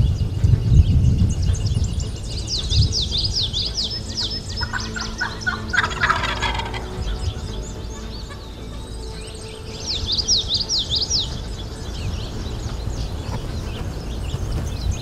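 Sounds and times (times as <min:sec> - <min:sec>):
songbird chirps: 0:00.0 - 0:15.0
turkey gobbling: 0:04.6 - 0:06.9.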